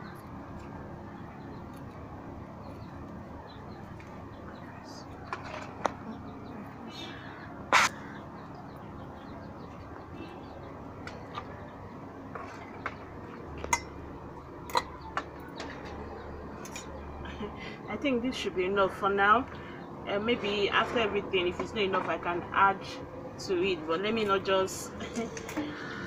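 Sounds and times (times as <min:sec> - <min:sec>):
outdoor background noise: 0:00.0 - 0:26.0
crow cawing: 0:07.1 - 0:08.3.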